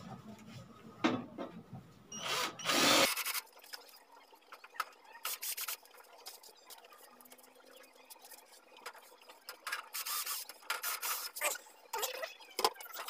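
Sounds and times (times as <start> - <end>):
cordless drill running: 2.2 - 3.3.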